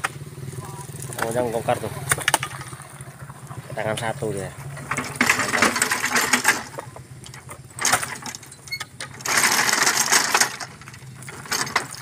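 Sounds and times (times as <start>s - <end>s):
fruit bunches scraping over boards: 3.6s - 12.0s.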